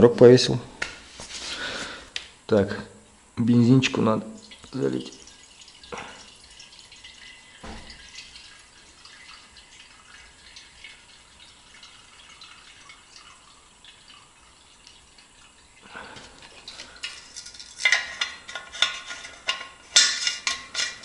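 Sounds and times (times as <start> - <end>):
fuel trickling into tank: 4.4 - 21.0.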